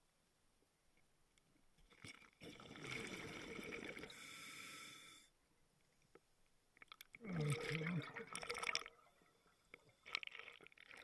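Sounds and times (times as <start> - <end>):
regulator exhalation bubbling: 7.2 - 8.9.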